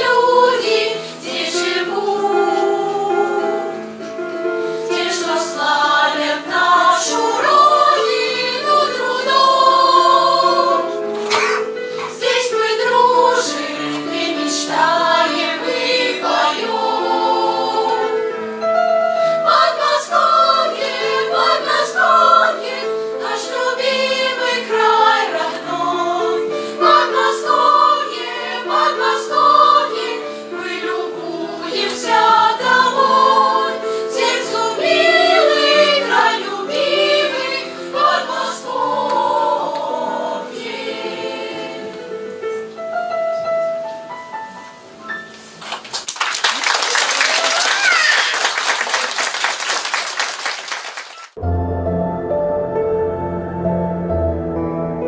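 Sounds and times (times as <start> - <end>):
children's choir singing: 0.0 - 43.0.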